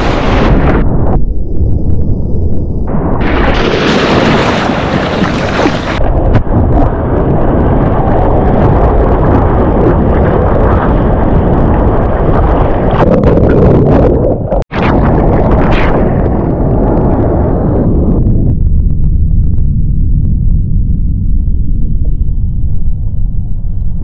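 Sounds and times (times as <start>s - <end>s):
wind buffeting microphone: 0.0s - 24.0s
surf water rushing and splashing: 3.2s - 6.4s.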